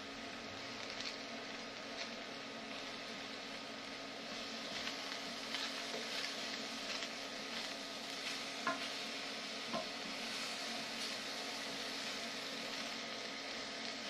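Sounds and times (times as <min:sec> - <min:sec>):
vegetables sizzling in a frying pan: 0:00.0 - 0:14.0
spatula stirring in a pan: 0:04.1 - 0:13.1.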